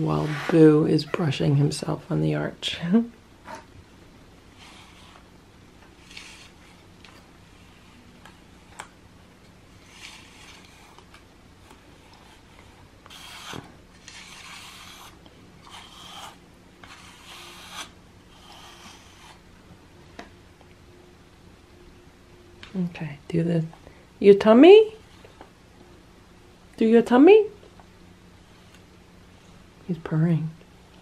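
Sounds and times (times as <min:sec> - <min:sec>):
brush strokes through cat fur: 0:00.0 - 0:00.9, 0:04.5 - 0:05.3, 0:06.0 - 0:08.2, 0:09.8 - 0:19.4.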